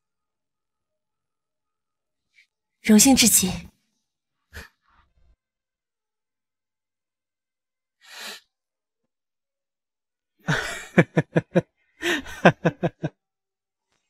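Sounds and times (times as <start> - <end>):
breath: 8.0 - 8.6
person laughing: 10.5 - 13.1.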